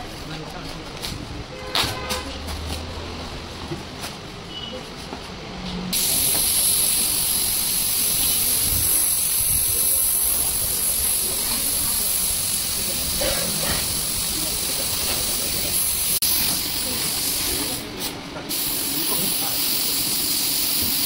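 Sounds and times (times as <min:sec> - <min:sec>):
compressed air hissing: 0:05.9 - 0:21.0.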